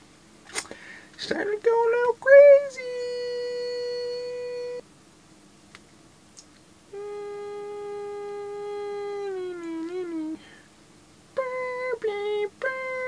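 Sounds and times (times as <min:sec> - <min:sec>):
man singing a long note: 0:01.2 - 0:04.8, 0:06.9 - 0:10.4, 0:11.4 - 0:13.0.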